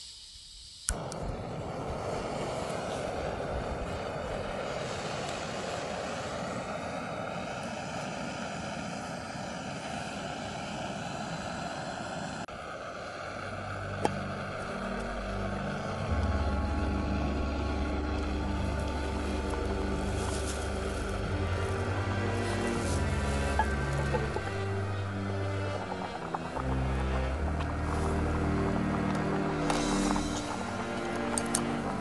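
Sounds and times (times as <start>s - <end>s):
gas stove flame hissing: 0.0s - 32.0s
background music with bass: 13.8s - 32.0s.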